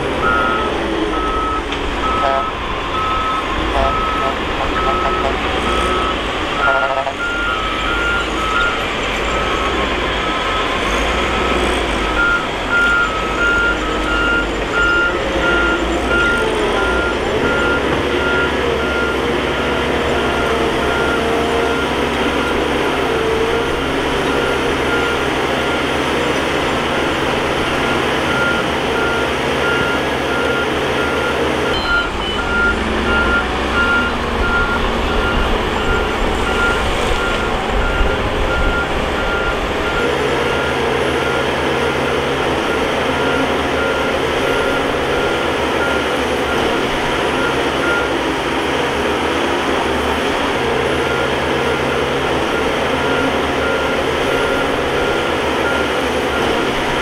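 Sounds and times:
bulldozer diesel engine: 0:00.0 - 0:57.0
reverse alarm beeping: 0:00.2 - 0:26.2, 0:27.6 - 0:48.4.

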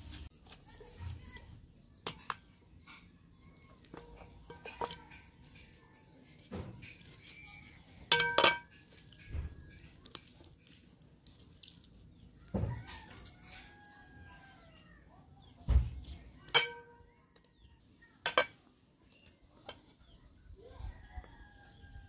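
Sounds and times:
knife tapping metal tray: 0:08.1 - 0:08.8, 0:16.5 - 0:16.8.

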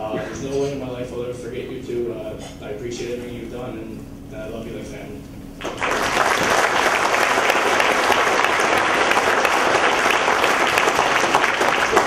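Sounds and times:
audience applause: 0:05.6 - 0:12.0.

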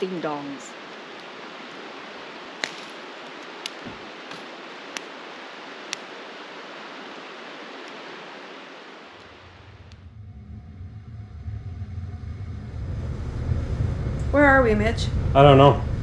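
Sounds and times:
steady rushing hiss: 0:00.0 - 0:16.0.

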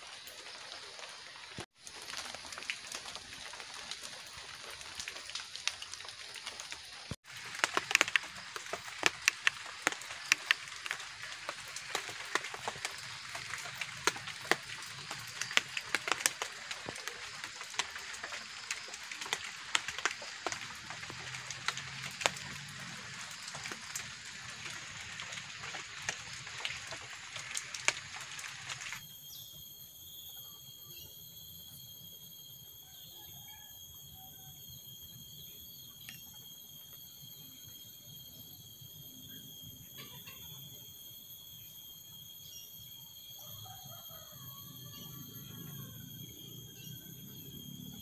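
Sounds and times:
heavy rain on a tarpaulin: 0:00.0 - 0:29.0
insects droning: 0:00.0 - 0:48.0
sharp drip ticks: 0:02.0 - 0:29.0.

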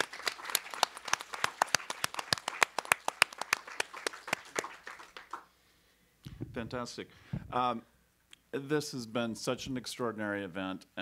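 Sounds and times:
audience applause: 0:00.0 - 0:05.5
sharp individual claps: 0:00.0 - 0:05.5.

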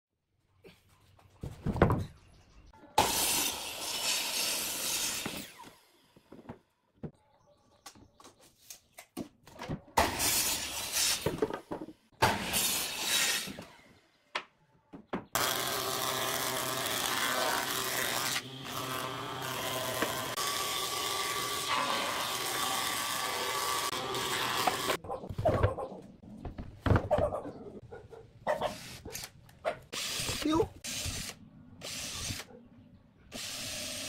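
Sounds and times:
miter saw cutting: 0:03.0 - 0:06.1, 0:15.4 - 0:25.0
thickness planer planing wood: 0:15.4 - 0:25.0.

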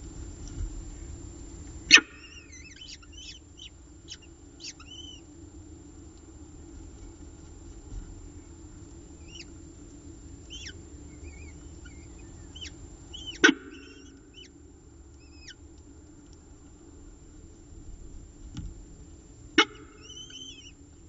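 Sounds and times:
steady low hum: 0:00.0 - 0:21.0
falcon chicks chirping: 0:01.9 - 0:05.3, 0:09.2 - 0:09.6, 0:10.4 - 0:14.6, 0:15.2 - 0:15.6, 0:19.6 - 0:20.8.

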